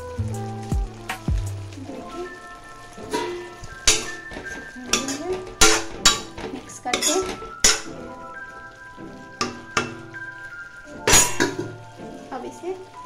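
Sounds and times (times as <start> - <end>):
background music: 0.0 - 13.0
ladle scraping metal pan: 1.9 - 8.7, 11.0 - 11.8.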